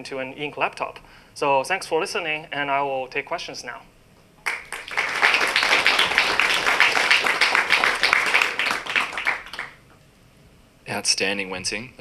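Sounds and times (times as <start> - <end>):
audience applauding: 4.4 - 9.8.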